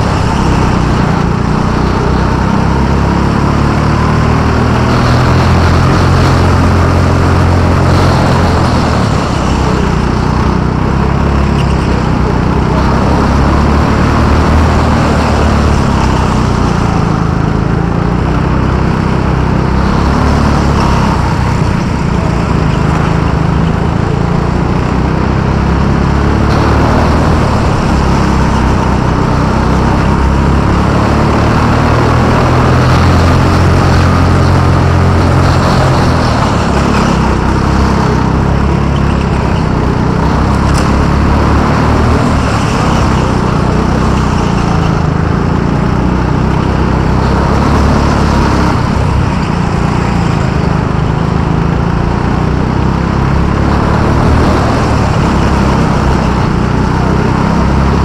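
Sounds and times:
go-kart engine running: 0:00.0 - 0:58.0.

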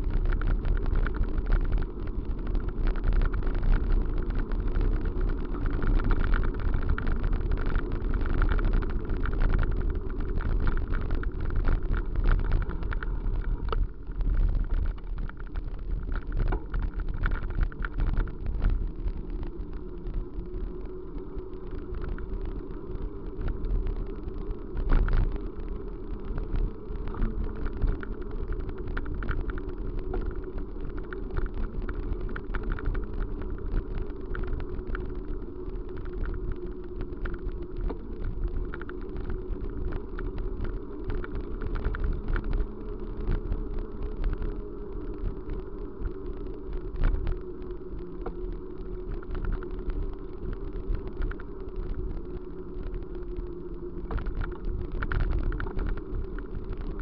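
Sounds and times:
vehicle running rumble: 0:00.0 - 0:57.0
small clicks and knocks: 0:00.1 - 0:22.6, 0:45.2 - 0:57.0.

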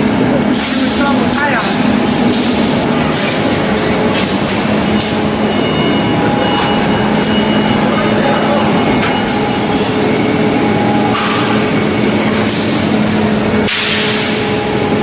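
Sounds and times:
machinery humming: 0:00.0 - 0:15.0.

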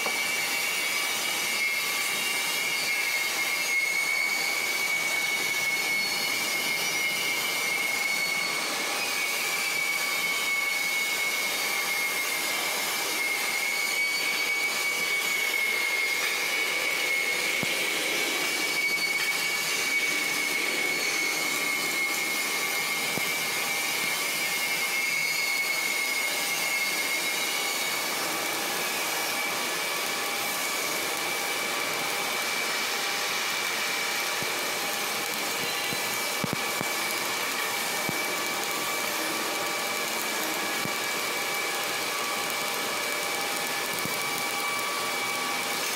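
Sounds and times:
high-pitched machine whine: 0:00.0 - 0:45.9.

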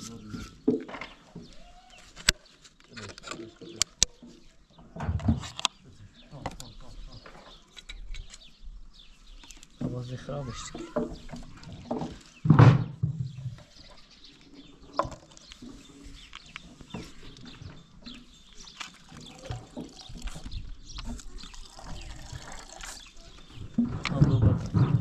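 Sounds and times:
loud thump: 0:12.5 - 0:13.2
liquid pouring and splashing: 0:18.6 - 0:23.4.

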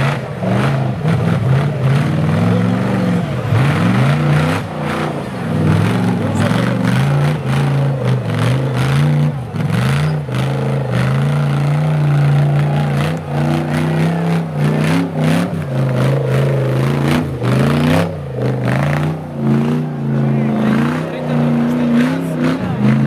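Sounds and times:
buggy engine revving hard: 0:00.0 - 0:23.0.

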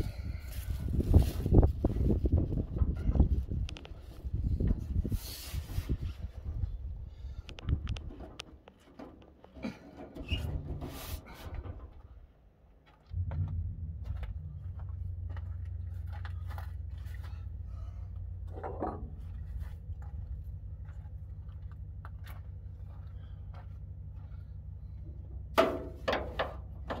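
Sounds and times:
steady low hum: 0:10.8 - 0:27.0.

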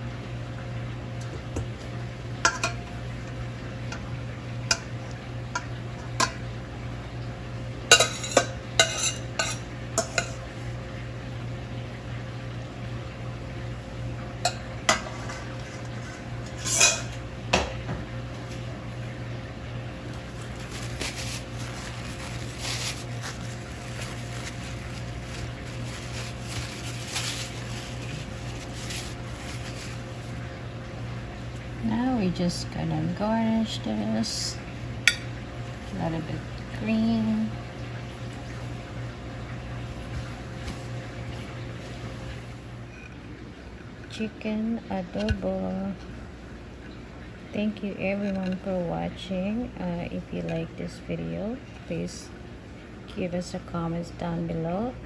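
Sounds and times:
steady low hum: 0:00.0 - 0:55.0
metal spoon clinking on a pot: 0:07.9 - 0:10.4.

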